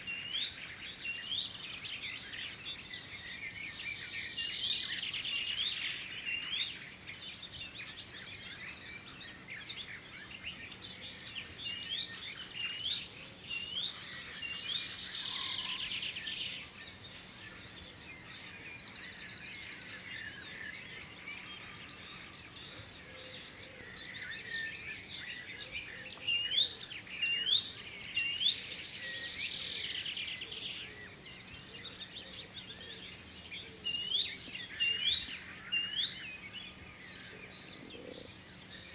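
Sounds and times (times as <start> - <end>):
songbirds singing: 0.0 - 38.9.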